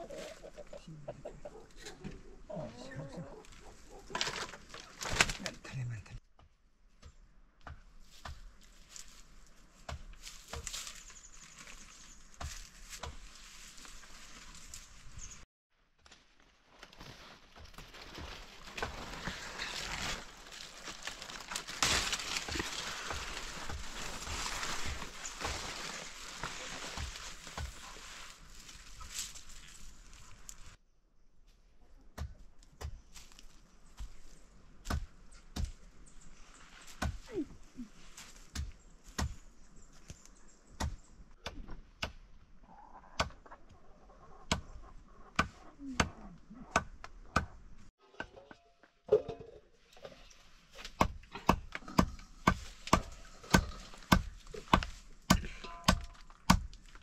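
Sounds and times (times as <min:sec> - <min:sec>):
leaves and stems rustling: 0:03.4 - 0:05.7, 0:08.1 - 0:15.4, 0:16.1 - 0:30.8, 0:36.2 - 0:39.2
blade chopping vine ropes: 0:16.1 - 0:29.4, 0:50.8 - 0:57.0.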